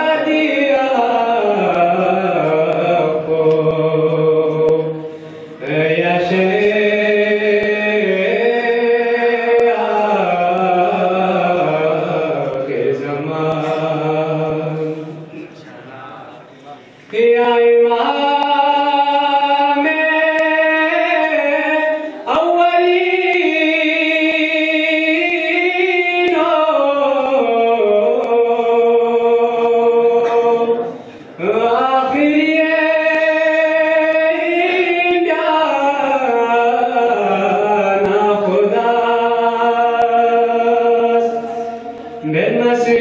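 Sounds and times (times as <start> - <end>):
man singing long notes: 0.0 - 15.5, 17.0 - 43.0.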